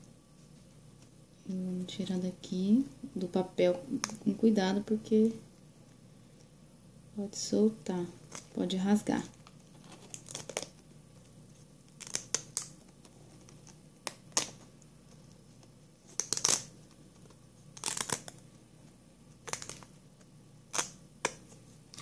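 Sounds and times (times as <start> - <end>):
paper crinkling and rustling: 9.3 - 18.4.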